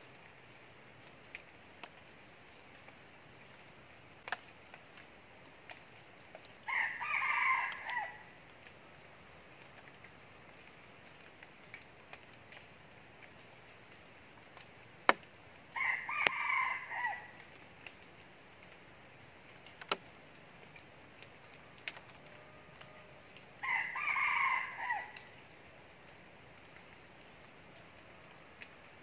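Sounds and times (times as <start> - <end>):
rooster crowing: 6.7 - 8.2, 15.8 - 17.3, 22.3 - 25.2.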